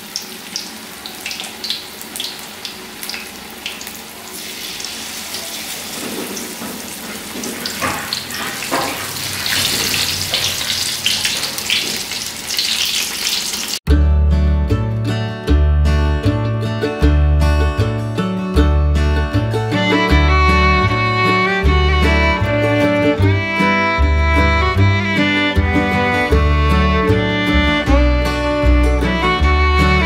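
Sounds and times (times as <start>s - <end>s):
food sizzling in hot oil: 0.0s - 13.8s
acoustic guitar music: 13.9s - 30.0s.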